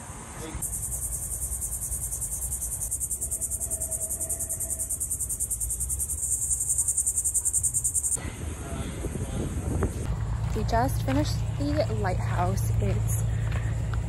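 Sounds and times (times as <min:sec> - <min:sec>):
insect buzzing high and fast-pulsing: 0:00.6 - 0:08.2.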